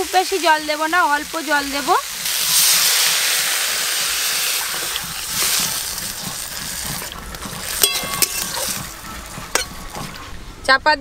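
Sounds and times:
water sizzling in hot oil: 0.0 - 10.3
water pouring: 1.8 - 10.4
spatula clinking on wok: 7.8 - 8.9.

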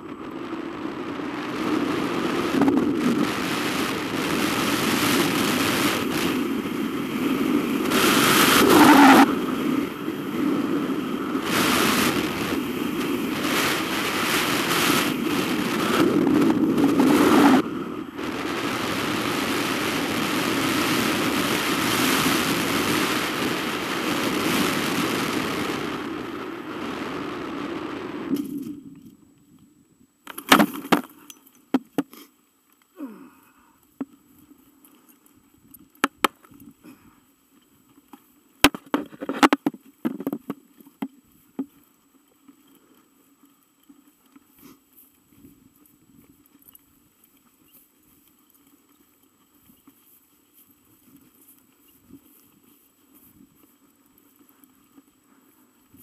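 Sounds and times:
wind rush on microphone: 0.0 - 29.1
faint steady hum: 0.0 - 56.0.

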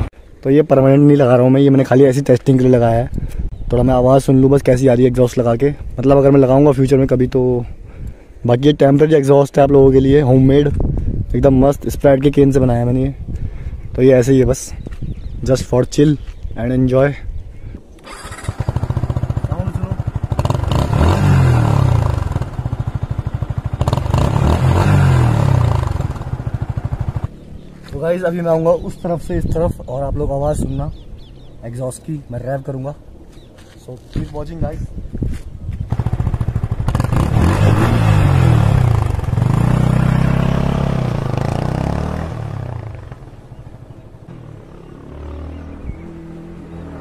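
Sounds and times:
motorcycle engine revving: 18.0 - 27.7, 35.9 - 47.0.

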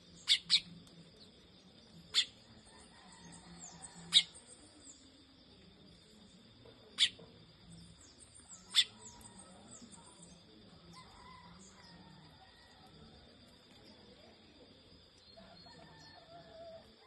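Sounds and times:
birds twittering: 0.0 - 1.3, 7.0 - 10.4.

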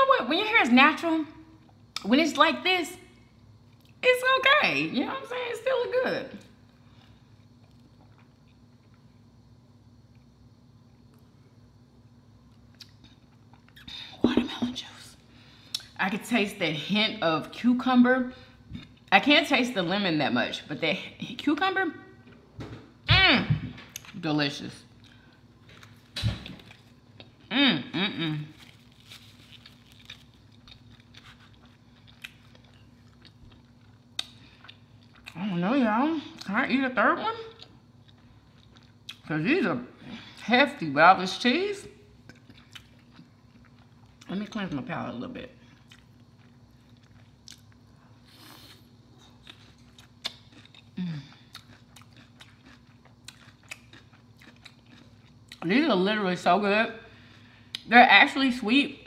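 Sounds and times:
woman humming: 27.5 - 28.6, 51.0 - 51.4
crunchy chewing of pepper: 28.4 - 35.4, 37.5 - 39.3, 42.2 - 44.3, 45.6 - 55.6.

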